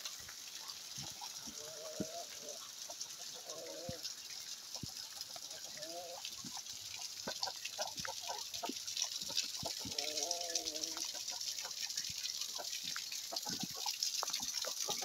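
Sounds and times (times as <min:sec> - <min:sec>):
heavy rain hissing: 0:00.0 - 0:11.2.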